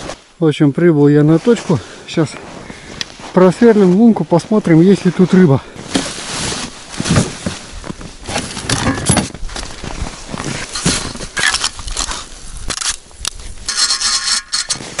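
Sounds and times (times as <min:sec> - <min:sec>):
metal auger knocking and clattering: 0:08.7 - 0:09.3, 0:13.7 - 0:15.0.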